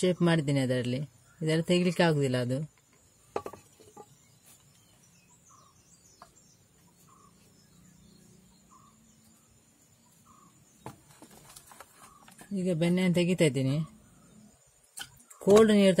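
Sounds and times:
wooden stick knocking on clay pot: 3.3 - 4.2
high wavering bird-like call: 7.0 - 7.5.

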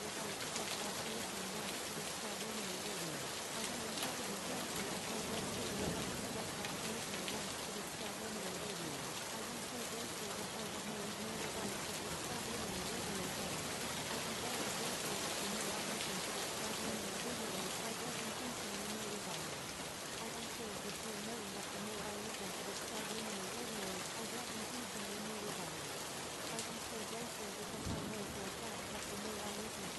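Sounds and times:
steady rain: 0.0 - 29.9
faint low voice: 26.4 - 29.9.

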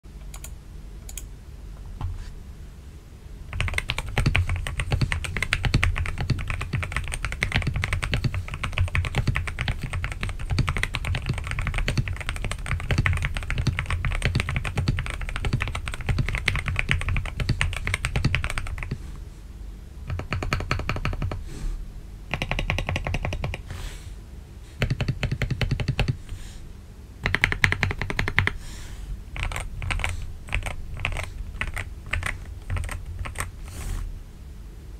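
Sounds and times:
fast typing on mechanical keyboard: 3.5 - 19.0, 20.1 - 21.4, 22.3 - 23.7, 24.8 - 26.2, 27.2 - 28.6, 29.4 - 33.6.

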